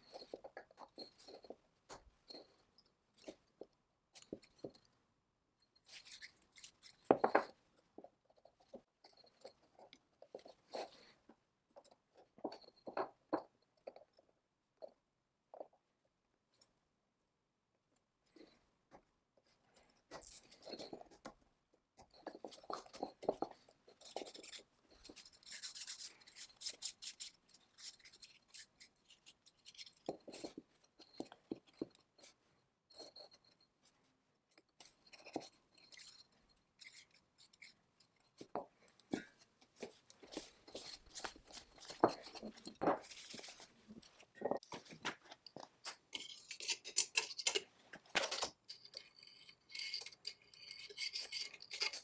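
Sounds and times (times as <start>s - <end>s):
metal clicks and scraping: 45.4s - 52.0s.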